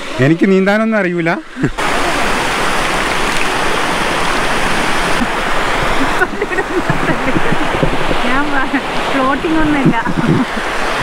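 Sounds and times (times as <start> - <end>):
faint voices: 0.0 - 2.6, 6.0 - 11.0
river water rushing over rocks: 0.0 - 11.0.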